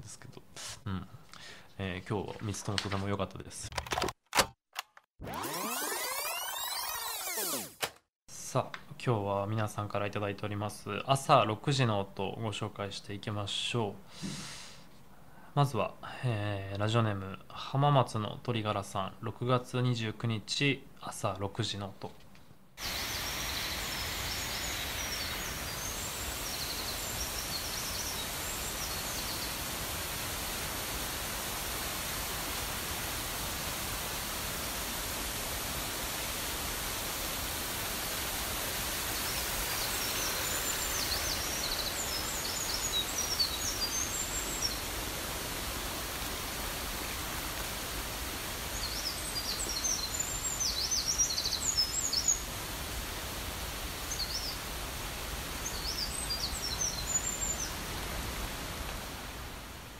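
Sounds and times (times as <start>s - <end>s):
birds chirping: 22.8s - 31.1s, 38.1s - 45.9s, 48.6s - 52.6s, 54.0s - 54.7s, 55.5s - 57.9s
stream rushing: 22.8s - 59.9s.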